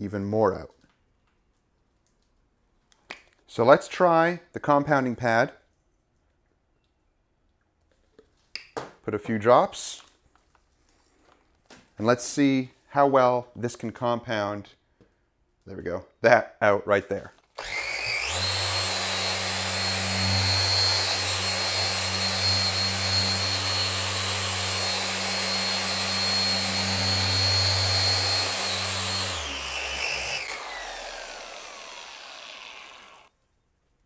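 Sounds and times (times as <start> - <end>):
polisher humming with high whine: 17.6 - 33.3.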